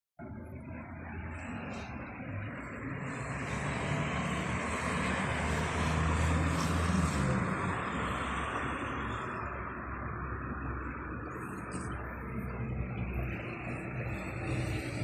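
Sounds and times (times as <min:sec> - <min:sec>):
engine passing by: 0:00.6 - 0:15.0.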